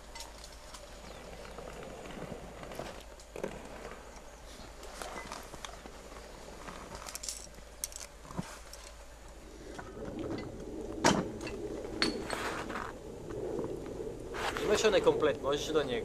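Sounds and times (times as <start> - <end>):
climbing gear clinking: 0.0 - 1.6, 6.6 - 9.0.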